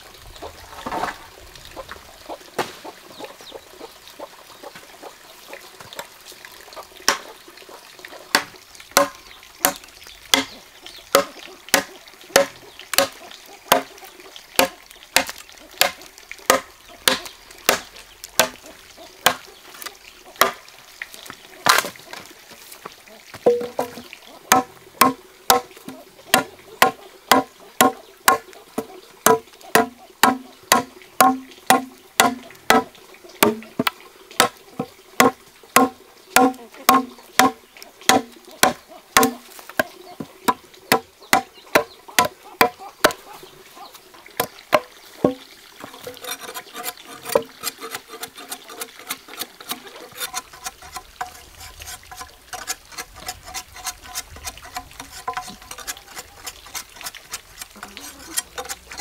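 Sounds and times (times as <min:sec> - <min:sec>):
machete chopping wooden log: 0:07.1 - 0:07.3, 0:08.3 - 0:13.9, 0:14.6 - 0:18.6, 0:19.2 - 0:19.4, 0:20.4 - 0:20.6, 0:21.7 - 0:22.0, 0:23.4 - 0:34.6, 0:35.2 - 0:39.9, 0:40.5 - 0:43.2.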